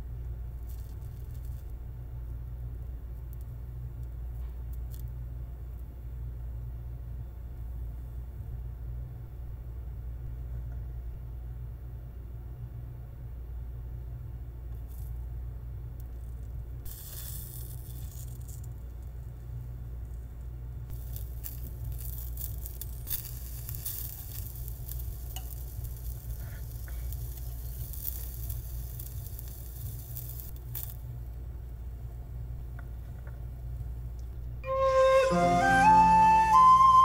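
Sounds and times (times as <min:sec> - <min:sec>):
steady low hum: 0:00.0 - 0:37.0
skewers sizzling on a griddle: 0:16.9 - 0:18.6, 0:20.9 - 0:31.1.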